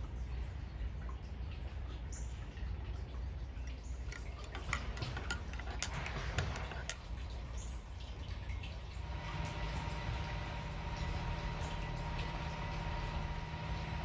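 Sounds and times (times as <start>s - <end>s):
water dripping: 0.0s - 14.0s
spoon clinking in a ceramic mug: 4.1s - 7.0s.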